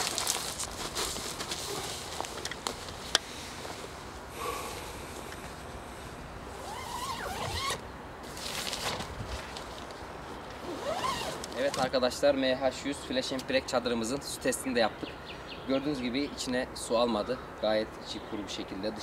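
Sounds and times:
tent fabric clicks and rustles: 0.0s - 3.9s, 6.5s - 12.0s
tent zipper zipping: 6.5s - 8.8s, 10.6s - 11.8s.

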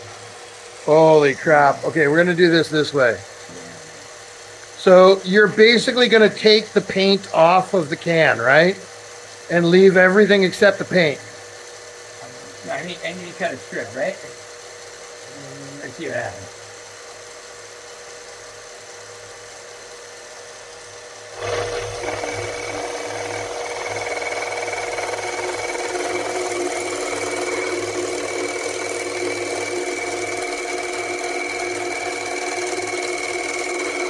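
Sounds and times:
metal lathe running: 0.0s - 34.0s
tool scraping can with high whine: 21.4s - 34.0s.

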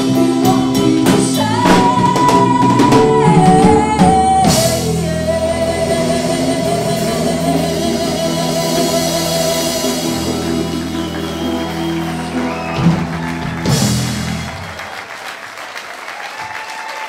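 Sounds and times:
rock band chord: 0.0s - 14.6s
drum hits with cymbal crash: 1.6s - 5.0s
audience applause: 9.9s - 17.0s.

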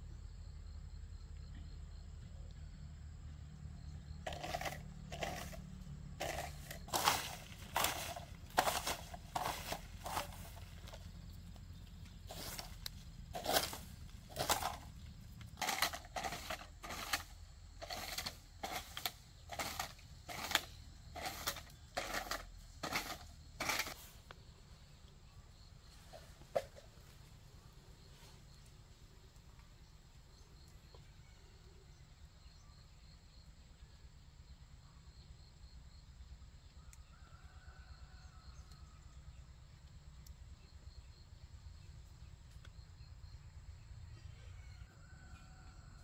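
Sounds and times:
rake scraping dry leaves: 4.2s - 11.2s, 11.8s - 24.4s.

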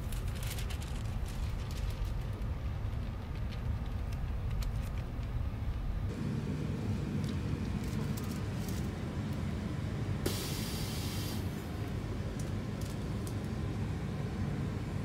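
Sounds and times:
plastic film peeling crackles: 0.0s - 5.4s
low machine hum: 5.1s - 15.0s
compressed air hiss: 10.2s - 11.6s.

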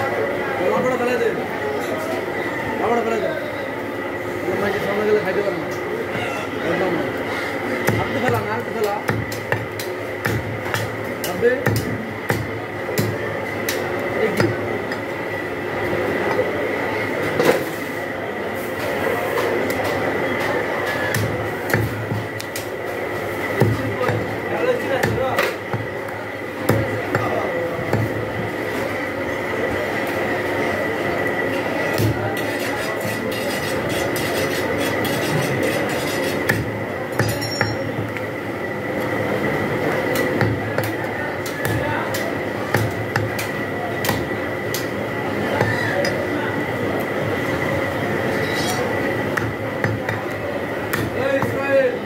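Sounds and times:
blade knocking on chopping block: 7.8s - 13.2s, 49.4s - 51.6s
machine din with high whine: 36.5s - 38.2s.

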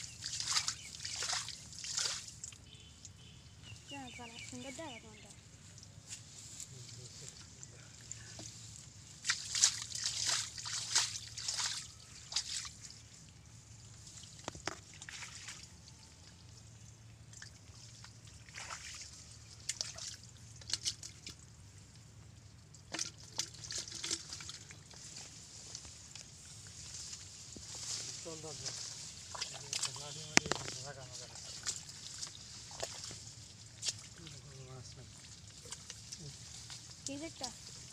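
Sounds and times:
hands squelching in wet mud: 0.0s - 2.7s, 9.2s - 13.2s, 14.0s - 16.6s, 17.2s - 21.6s, 22.6s - 37.9s.

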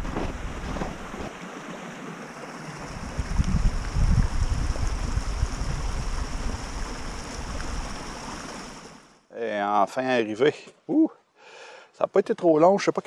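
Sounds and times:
brook rushing over rocks: 0.0s - 9.1s
wind buffeting microphone: 2.8s - 8.1s.

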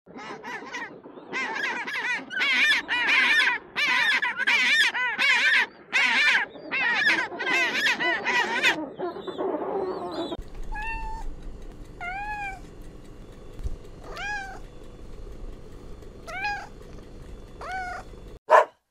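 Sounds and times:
penguin braying: 0.2s - 11.3s.

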